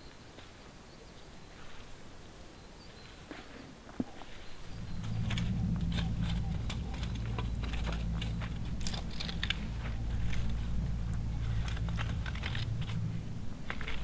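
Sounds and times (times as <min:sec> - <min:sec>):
rake scraping stony ground: 0:03.3 - 0:14.0
low rumble: 0:04.4 - 0:14.0.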